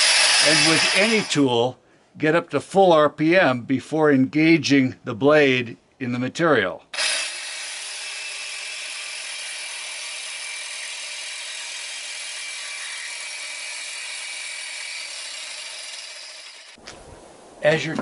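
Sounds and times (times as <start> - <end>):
jigsaw sawing through steel: 0.0 - 1.4, 7.0 - 16.8.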